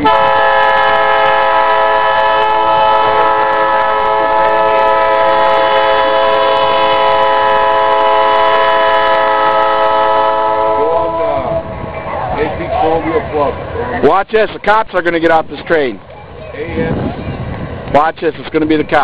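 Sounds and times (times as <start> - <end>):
locomotive air horn blast: 0.0 - 11.7.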